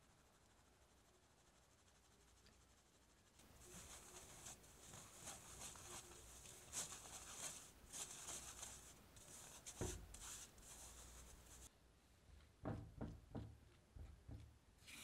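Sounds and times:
sieve rustling while shaken: 0:01.9 - 0:11.7
dull tap: 0:09.8 - 0:10.2, 0:12.6 - 0:14.6.

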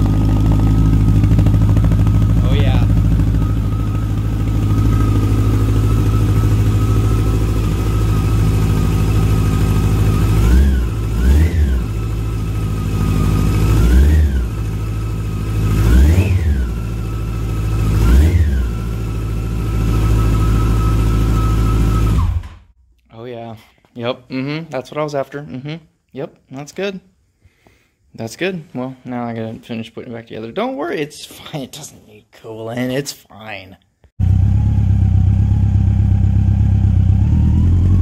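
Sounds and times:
motorcycle engine idling: 0:00.0 - 0:22.1, 0:34.2 - 0:38.0
engine throttle blips: 0:00.0 - 0:22.7.

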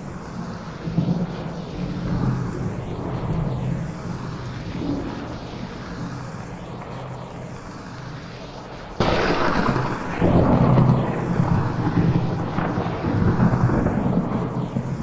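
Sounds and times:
steady rain: 0:00.0 - 0:15.0
thunder rumbling: 0:00.0 - 0:15.0
loud thunder crack: 0:09.0 - 0:15.0.

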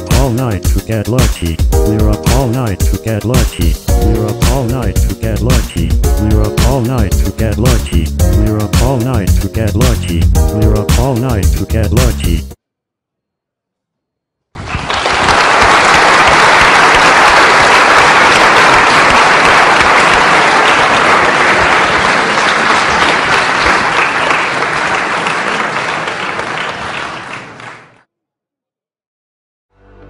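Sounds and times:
audience clapping: 0:01.1 - 0:08.0, 0:14.6 - 0:28.0.

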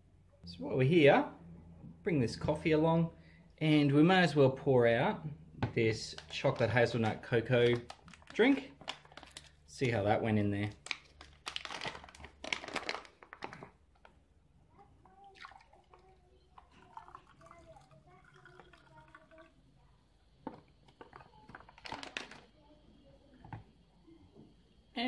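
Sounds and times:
pouch handling noises: 0:06.1 - 0:09.9, 0:10.7 - 0:14.2, 0:21.0 - 0:22.5
liquid glugging into glass: 0:15.3 - 0:19.6.

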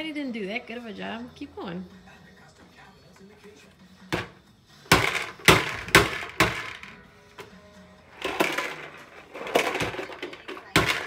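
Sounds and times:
balls rattling and popping: 0:04.2 - 0:07.5, 0:08.2 - 0:11.0
toy vacuum clattering over tile: 0:04.2 - 0:07.6, 0:08.2 - 0:11.0.

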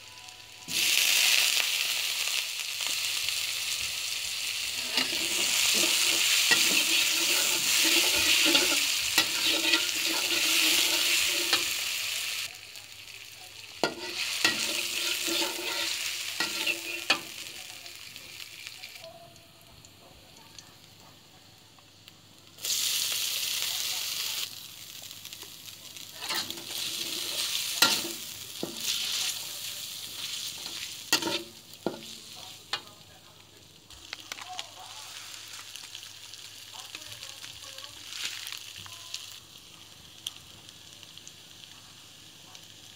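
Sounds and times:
food sizzling in oil: 0:00.0 - 0:42.9
metal spatula scraping wok: 0:04.7 - 0:12.5, 0:13.8 - 0:17.4, 0:26.2 - 0:32.4.

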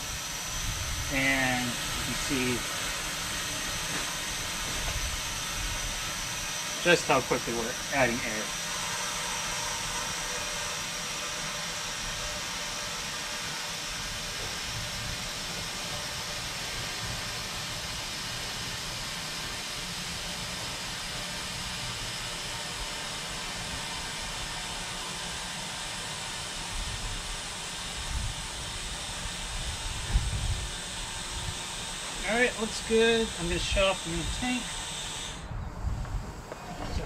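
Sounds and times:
gas hissing into tire: 0:00.0 - 0:09.6, 0:26.5 - 0:36.3.

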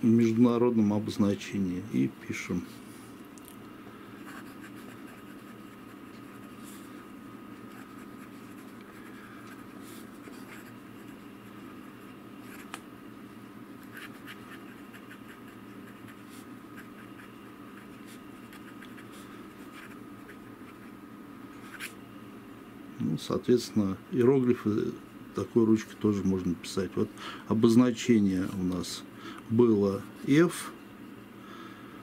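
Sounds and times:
fountain pen scratching on paper: 0:04.2 - 0:06.8, 0:07.6 - 0:12.8, 0:13.8 - 0:20.9.

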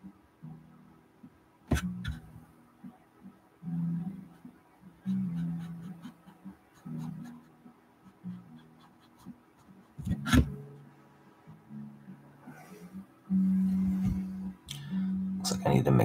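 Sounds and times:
faint low tones: 0:00.0 - 0:06.0, 0:09.9 - 0:16.0
paintbrush dabbing on canvas: 0:05.1 - 0:07.5.

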